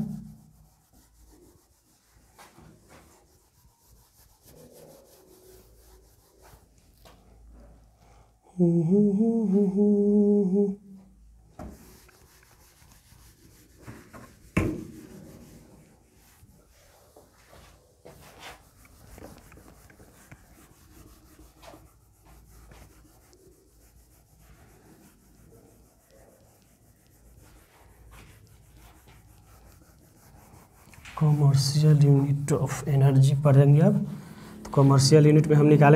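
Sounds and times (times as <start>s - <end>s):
duster rubbing on whiteboard: 0.0s - 7.8s, 11.6s - 35.9s
knock: 14.1s - 15.0s
man's voice: 31.2s - 35.9s.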